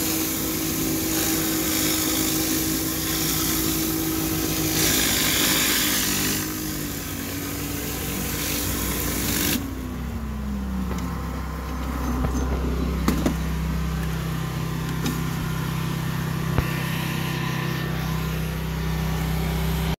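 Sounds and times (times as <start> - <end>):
pressure washer spray hiss: 0.0 - 9.7
engine hum: 0.0 - 20.0.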